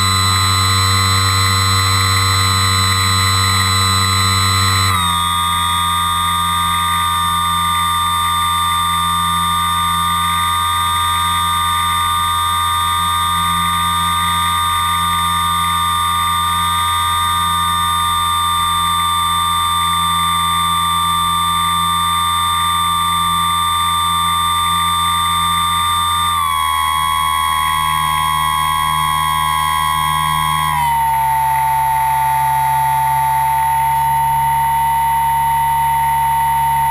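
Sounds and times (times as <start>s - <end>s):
electric motor whine: 0.0s - 36.9s
low hum: 0.0s - 36.9s.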